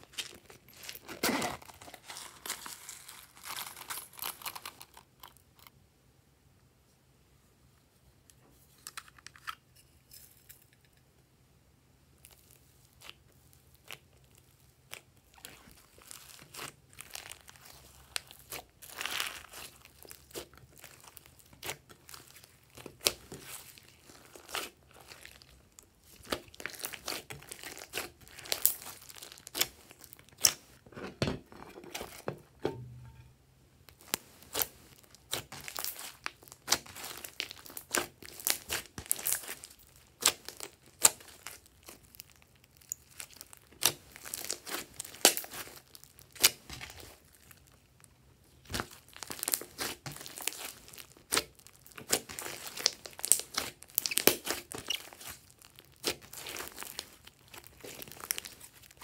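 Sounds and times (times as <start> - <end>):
slime squelching and popping: 12.2 - 30.8, 33.9 - 47.8, 48.6 - 59.0.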